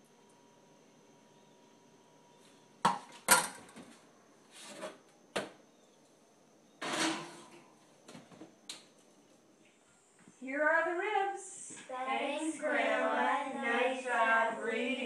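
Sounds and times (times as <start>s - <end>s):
metal cookware clanking: 6.8s - 7.6s
pan scraping on oven rack: 6.8s - 7.6s.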